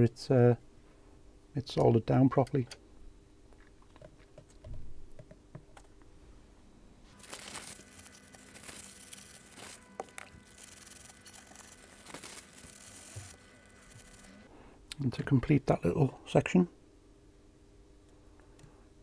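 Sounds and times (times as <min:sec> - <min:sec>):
tape crinkly tearing rustle: 0:07.1 - 0:14.4.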